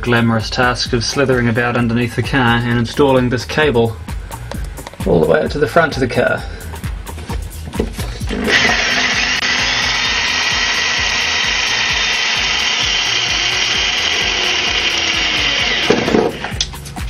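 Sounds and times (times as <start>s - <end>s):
cordless drill boring: 8.3s - 16.6s.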